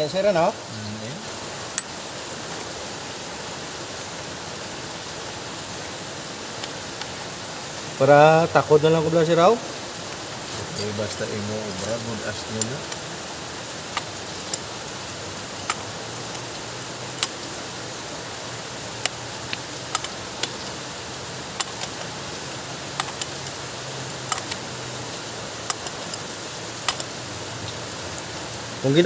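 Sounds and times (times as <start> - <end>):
steady hiss: 0.0 - 29.0
socket ratchet clicks: 17.1 - 17.4, 19.0 - 20.8, 21.5 - 22.2, 22.9 - 23.6, 24.2 - 24.8, 25.6 - 27.2.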